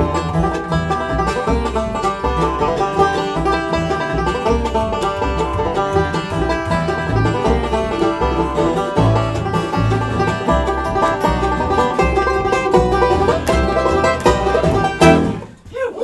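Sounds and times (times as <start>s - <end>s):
banjo picking: 0.0s - 15.7s
bluegrass band playing: 0.0s - 15.7s.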